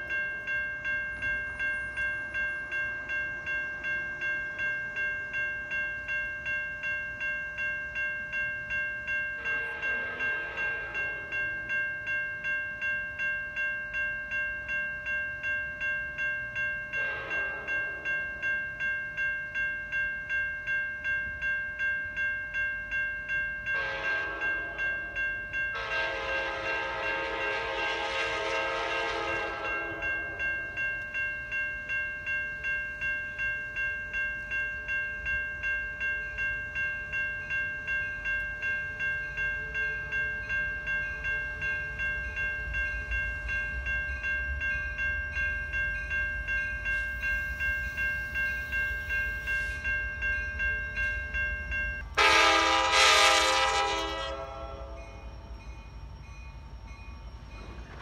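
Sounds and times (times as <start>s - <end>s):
railroad crossing bells: 0.0s - 58.0s
train horn: 9.4s - 11.2s, 17.0s - 17.8s, 23.7s - 24.8s, 25.7s - 30.1s, 52.1s - 55.3s.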